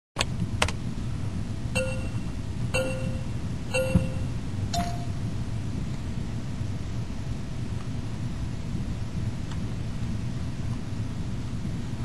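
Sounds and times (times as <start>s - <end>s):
steady low hum: 0.9s - 11.9s
electronic timer beeps: 1.8s - 5.2s.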